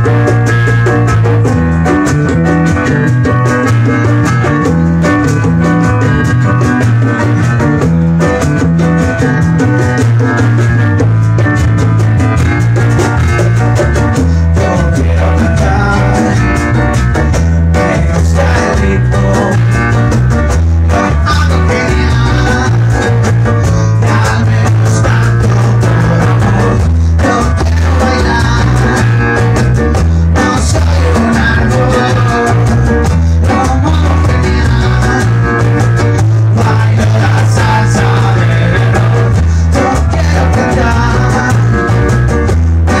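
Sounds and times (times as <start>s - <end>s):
bass line: 0.0s - 43.0s
drums: 0.0s - 43.0s
electric guitars: 0.0s - 43.0s
hand drum: 0.0s - 43.0s.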